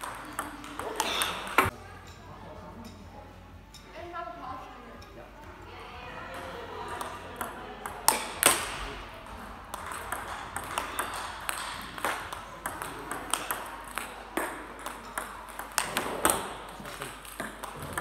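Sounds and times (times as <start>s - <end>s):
table tennis balls clicking: 0.0s - 1.7s, 6.3s - 18.0s.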